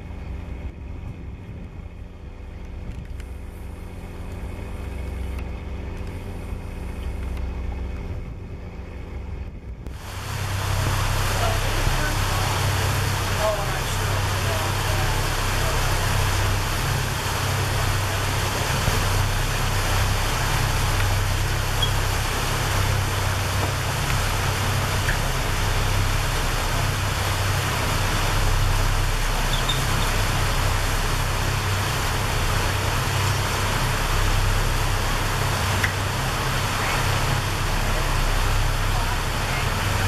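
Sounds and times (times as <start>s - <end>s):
ship engine humming: 0.0s - 40.0s.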